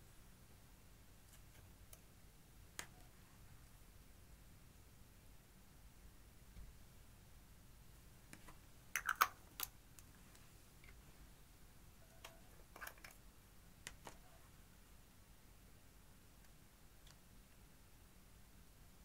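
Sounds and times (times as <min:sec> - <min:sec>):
plastic makeup pieces clicking: 0:09.0 - 0:09.7, 0:12.2 - 0:13.2.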